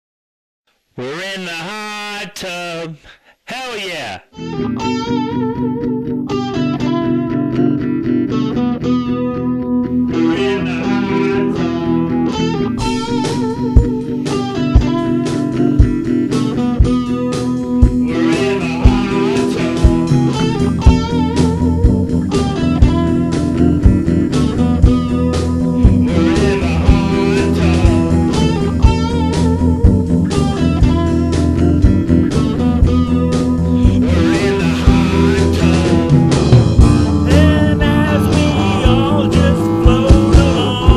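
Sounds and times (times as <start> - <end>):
electric guitar riff: 1.0 - 40.9
drum hits: 12.8 - 14.0, 14.8 - 15.1, 35.7 - 40.9
kick drum thumps: 14.8 - 15.0.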